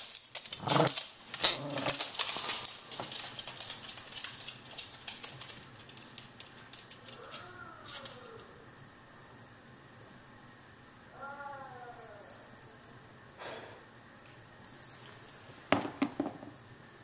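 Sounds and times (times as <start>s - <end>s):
dogs growling and scuffling: 0.0s - 8.5s
dog whining: 7.1s - 8.6s.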